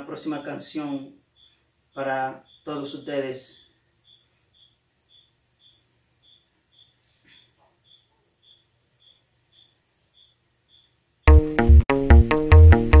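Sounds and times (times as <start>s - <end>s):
crickets high trill: 0.0s - 7.1s
cricket lower chirp: 0.0s - 11.3s.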